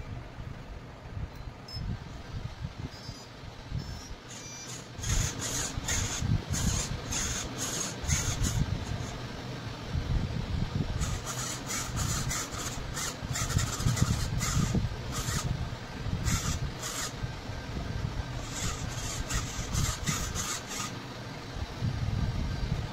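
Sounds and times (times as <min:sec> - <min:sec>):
steering servo whirring: 0:02.9 - 0:09.6, 0:10.8 - 0:21.3.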